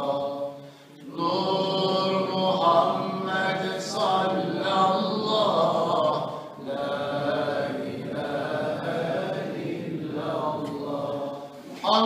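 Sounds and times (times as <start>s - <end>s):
man chanting melodic recitation: 1.7s - 6.2s, 11.8s - 12.0s.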